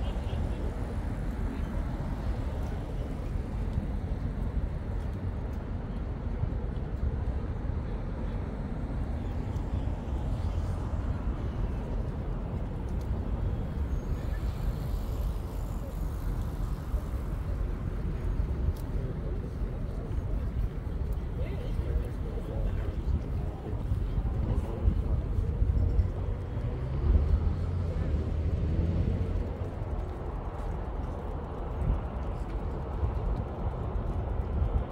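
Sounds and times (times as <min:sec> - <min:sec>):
distant road traffic rumble: 0:00.0 - 0:34.9.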